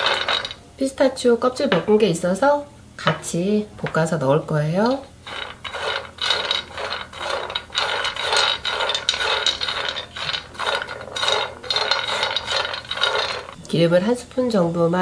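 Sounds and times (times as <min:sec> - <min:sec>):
nuts rattling in frying pan: 0:00.0 - 0:00.6, 0:04.8 - 0:13.6
spatula stirring: 0:00.0 - 0:00.6, 0:04.8 - 0:13.7.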